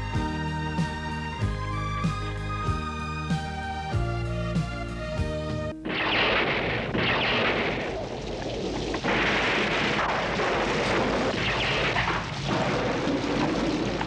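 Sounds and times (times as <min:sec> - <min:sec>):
thunder claps: 0:05.8 - 0:14.0
heavy rain: 0:05.9 - 0:14.0.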